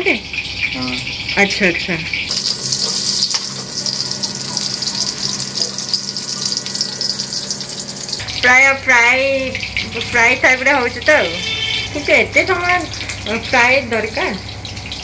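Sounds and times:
slices sizzling in hot oil: 0:02.3 - 0:08.2.

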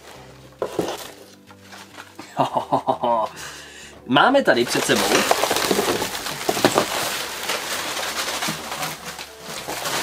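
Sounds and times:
packing material rustling: 0:00.0 - 0:02.2, 0:04.4 - 0:10.0.

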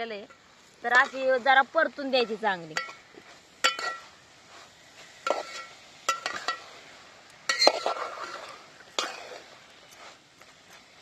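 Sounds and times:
metal spatula knocking pot: 0:02.2 - 0:03.0, 0:03.6 - 0:04.1
spatula scraping pot: 0:02.8 - 0:06.6.

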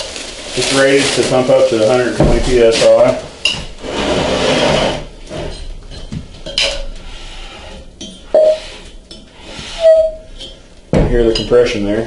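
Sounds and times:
short bursts of air: 0:08.3 - 0:10.2
loud tone: 0:08.4 - 0:08.6, 0:09.8 - 0:10.3.

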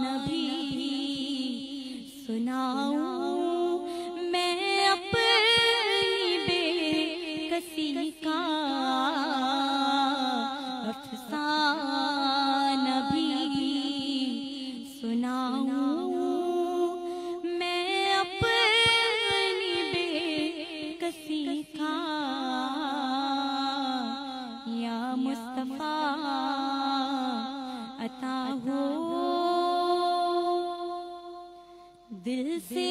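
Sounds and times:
woman singing: 0:00.0 - 0:32.9
singer breathing: 0:03.8 - 0:04.2, 0:17.0 - 0:17.4.

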